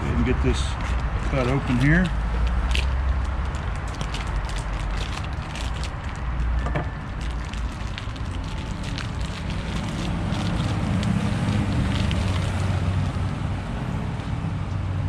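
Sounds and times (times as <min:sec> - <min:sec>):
plastic wrapping crinkling: 0:00.8 - 0:13.2.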